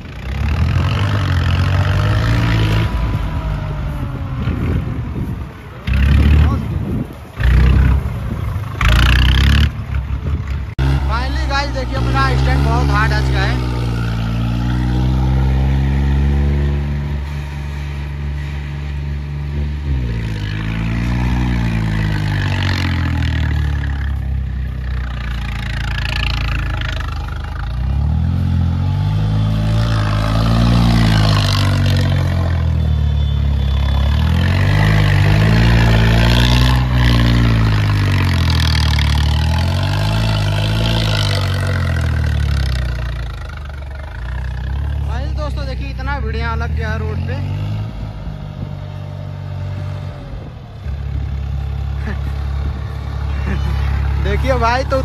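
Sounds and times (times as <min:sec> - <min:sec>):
tractor diesel engine revving: 0:00.0 - 0:55.0.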